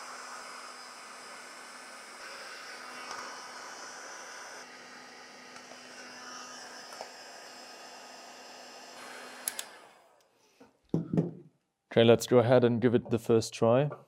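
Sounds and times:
heat gun blowing: 0.0 - 10.6.

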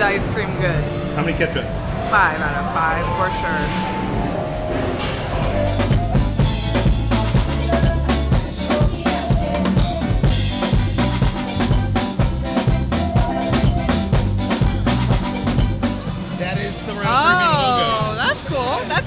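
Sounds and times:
deep bass notes: 0.0 - 19.0
live band playing: 0.0 - 19.0
drum kit beat: 4.7 - 19.0.

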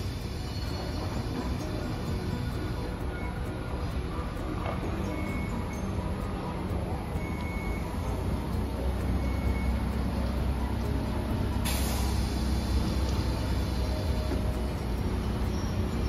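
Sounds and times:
tram humming: 0.0 - 16.0
compressed air hiss: 11.6 - 15.8.

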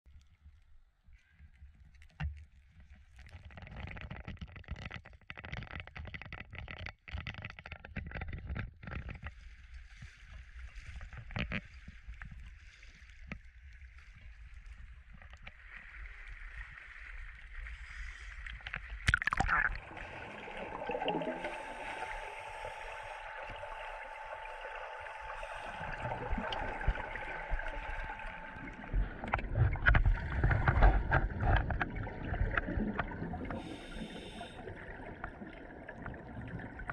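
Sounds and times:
water sloshing and gurgling: 1.4 - 36.9
scuba exhaust bubbles underwater: 16.0 - 36.9.

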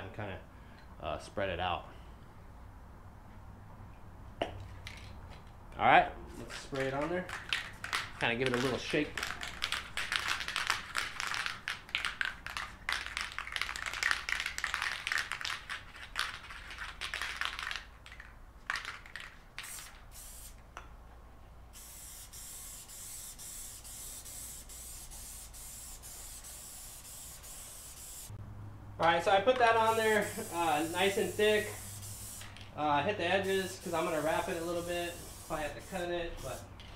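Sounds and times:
aerosol can rattling when shaken: 6.5 - 20.4
spray can hissing: 18.8 - 20.6, 21.7 - 28.4, 29.6 - 32.7, 33.4 - 36.9.

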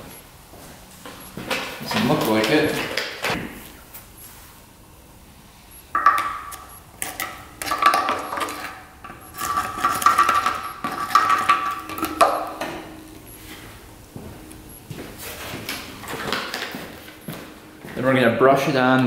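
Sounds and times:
steady high tone: 4.0 - 19.0
metal clinking and knocking: 6.0 - 12.8.

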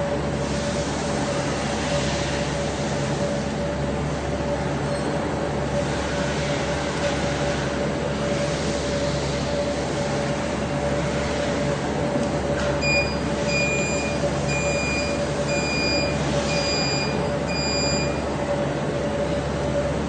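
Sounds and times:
machinery hum: 0.0 - 20.0
high-pitched electronic beeps: 12.8 - 18.2.

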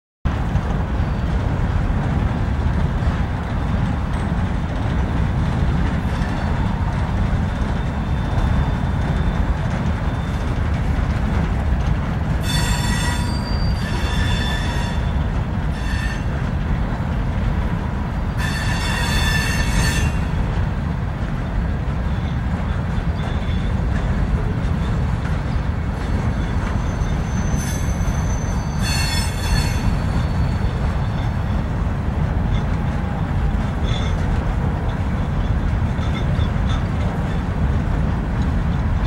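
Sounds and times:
freight train rumbling past: 0.3 - 39.0
wheel flange squeal: 7.8 - 10.5, 12.4 - 16.4, 18.4 - 20.3, 26.1 - 31.6.

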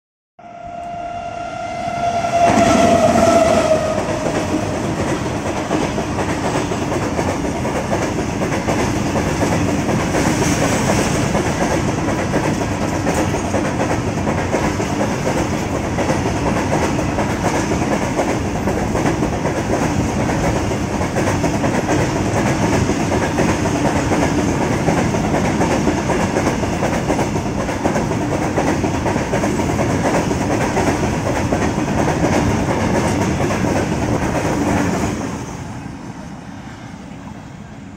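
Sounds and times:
locomotive horn blast: 0.4 - 4.8
train wheels on rails: 0.8 - 37.9.

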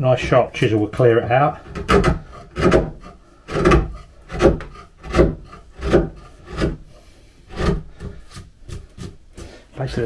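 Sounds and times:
chisel paring wood: 1.0 - 6.9, 7.5 - 9.5.

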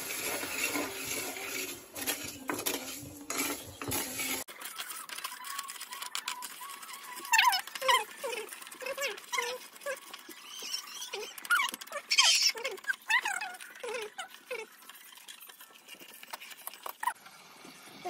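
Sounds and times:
spatula scraping and tapping wok: 0.0 - 4.5
sugar sizzling in a wok: 0.0 - 4.5.

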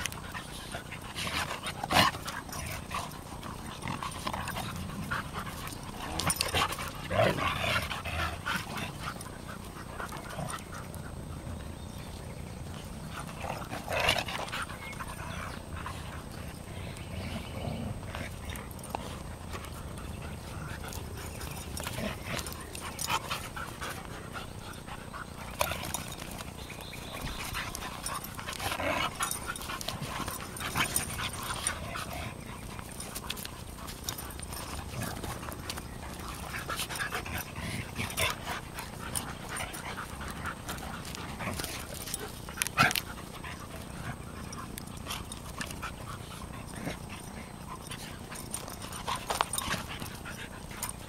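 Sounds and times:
dogs vocalizing: 0.0 - 51.0
dogs scuffling: 12.0 - 51.0.

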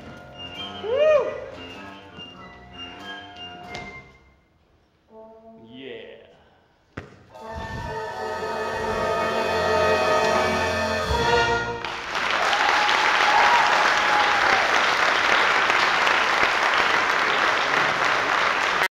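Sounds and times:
orchestra brass and strings chord: 7.4 - 12.0
audience applause: 11.8 - 18.9.

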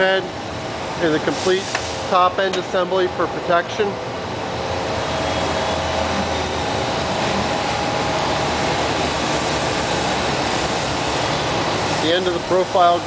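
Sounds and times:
grinder machine running: 4.5 - 13.0.

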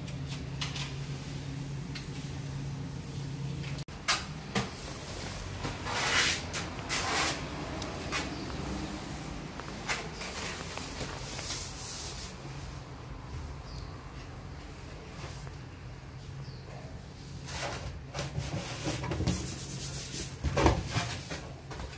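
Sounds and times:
board scraping: 5.6 - 8.3.

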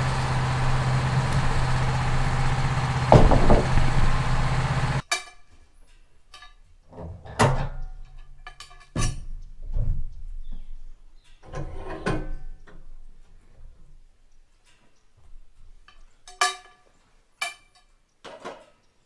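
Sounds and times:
sawmill engine running: 0.0 - 5.0
log knocking and clanking on steel: 0.5 - 5.6, 6.3 - 10.7.

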